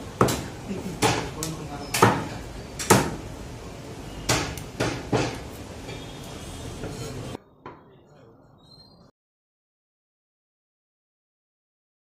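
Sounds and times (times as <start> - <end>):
steady background noise: 0.0 - 9.1
knife chopping on wooden block: 0.2 - 1.4, 2.0 - 3.2, 4.3 - 5.5.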